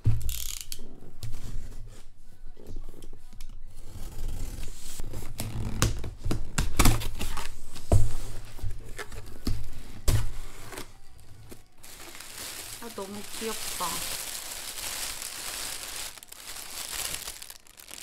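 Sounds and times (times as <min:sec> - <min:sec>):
packing tape tearing: 0:00.2 - 0:00.9, 0:10.4 - 0:18.0.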